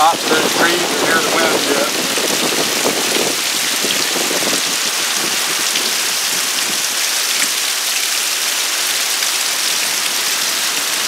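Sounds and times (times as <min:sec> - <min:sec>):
wind rushing through treetops: 0:00.0 - 0:08.6
heavy rain falling: 0:00.0 - 0:11.0.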